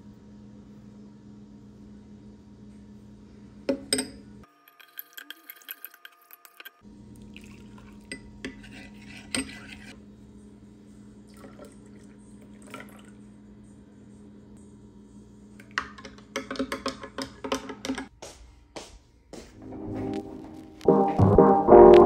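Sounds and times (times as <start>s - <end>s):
liquid pouring into mug: 7.1s - 8.2s, 11.3s - 13.3s
low hum: 19.6s - 22.0s.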